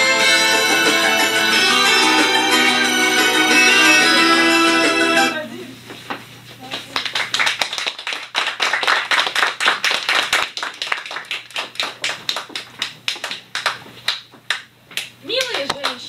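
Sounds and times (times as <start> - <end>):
audience applauding: 6.8 - 14.7.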